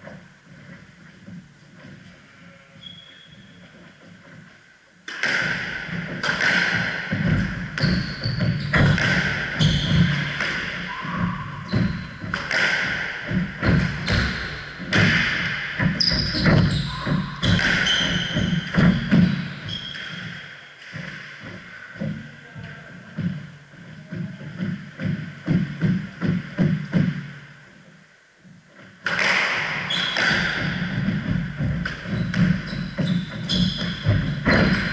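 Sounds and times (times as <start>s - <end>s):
shoes squeaking: 0.0s - 4.6s, 5.5s - 22.2s, 29.8s - 34.9s
squash ball hitting rackets and walls: 3.8s - 22.2s, 28.9s - 34.9s.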